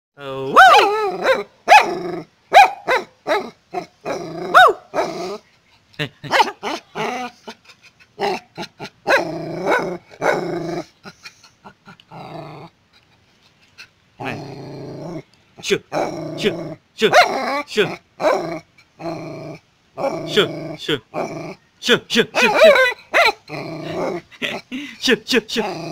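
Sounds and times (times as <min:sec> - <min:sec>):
small dog barking and yipping: 0:00.5 - 0:05.3, 0:09.0 - 0:10.4, 0:17.1 - 0:17.6, 0:22.4 - 0:24.2.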